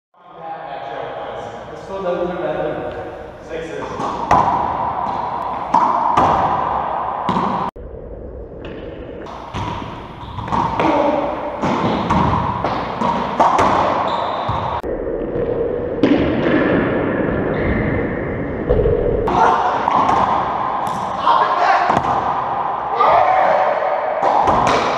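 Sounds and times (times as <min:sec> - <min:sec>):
racquetball hitting strings and walls: 0:02.9 - 0:07.7, 0:08.6 - 0:18.0, 0:18.7 - 0:21.2, 0:21.8 - 0:22.8, 0:24.1 - 0:24.9.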